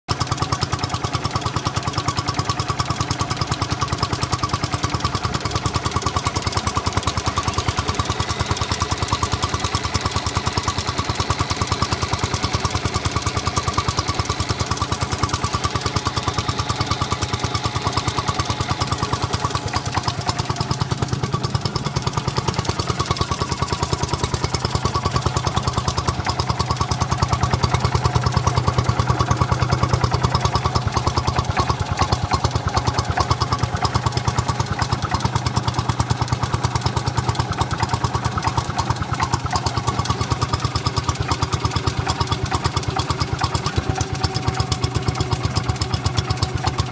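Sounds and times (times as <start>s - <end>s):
stationary engine running: 0.1s - 46.9s.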